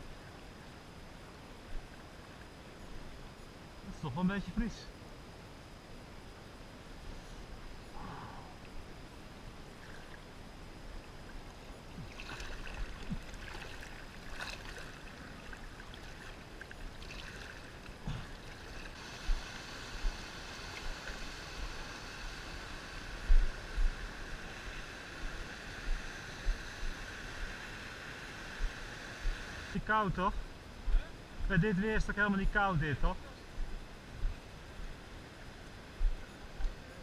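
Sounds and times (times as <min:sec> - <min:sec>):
high-pitched hum: 0:00.0 - 0:37.0
stream water over rocks: 0:09.7 - 0:29.5.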